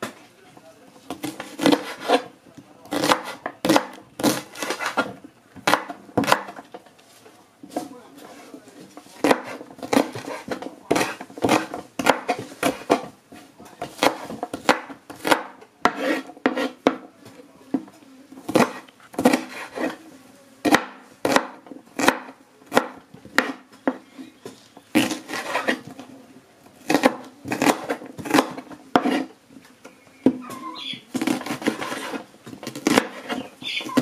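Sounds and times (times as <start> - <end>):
knife chopping on wooden board: 1.1 - 2.3, 2.9 - 6.7, 9.2 - 13.1, 13.8 - 17.1, 18.5 - 20.0, 20.6 - 24.0, 24.9 - 25.9, 26.8 - 29.3, 31.1 - 34.0.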